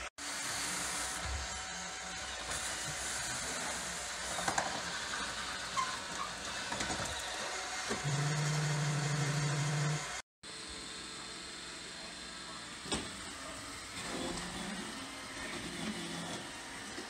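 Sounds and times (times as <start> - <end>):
robot vacuum whirring: 0.4 - 10.2, 13.2 - 17.0.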